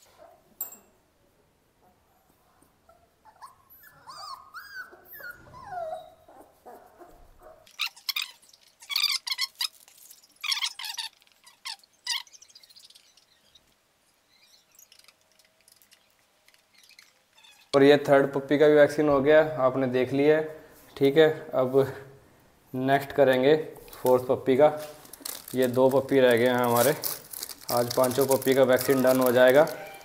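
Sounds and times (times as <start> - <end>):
puppies whining and whimpering: 3.2 - 6.8.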